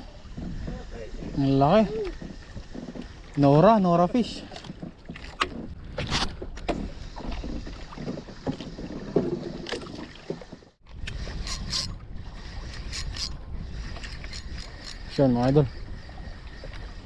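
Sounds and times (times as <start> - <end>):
water around boat: 0.0 - 17.0
wind on microphone: 0.0 - 17.0
fishing reel clicking: 11.1 - 11.9, 12.6 - 17.0.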